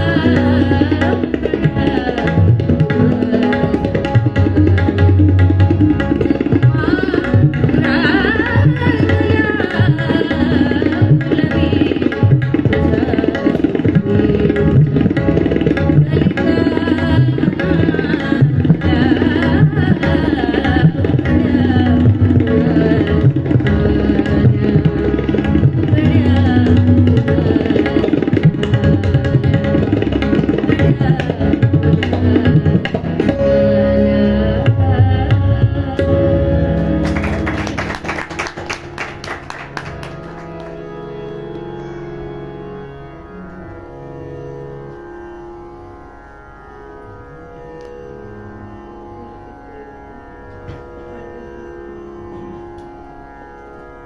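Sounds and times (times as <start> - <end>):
tabla playing: 0.0 - 42.9
harmonium held notes: 0.0 - 54.0.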